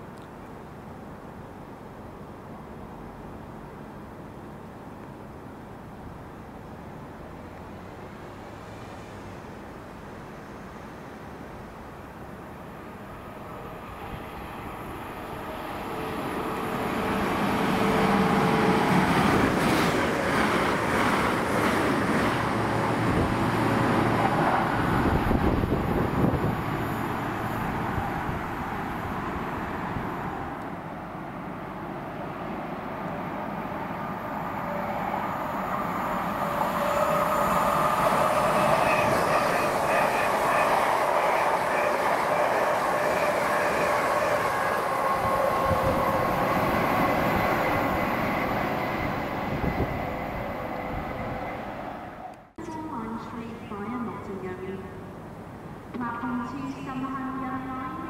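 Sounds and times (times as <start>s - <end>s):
train wheels on rails: 13.6s - 30.7s, 34.2s - 52.5s.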